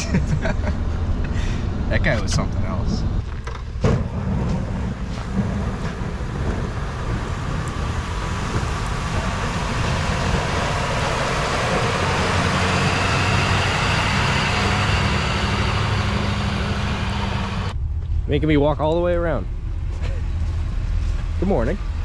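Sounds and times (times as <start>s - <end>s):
truck engine under load: 0.0s - 18.3s
plow blade scraping snow: 3.8s - 17.7s.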